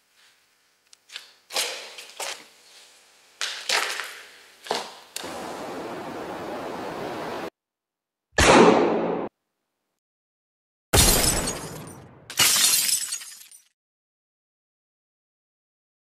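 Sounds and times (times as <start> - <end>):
steady rushing noise: 5.2 - 7.5
sharp echoing cracks: 8.4 - 9.3.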